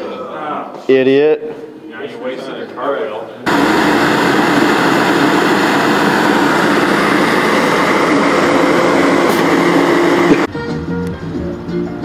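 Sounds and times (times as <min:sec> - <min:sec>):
electric blower fan rushing air: 0:03.5 - 0:11.3.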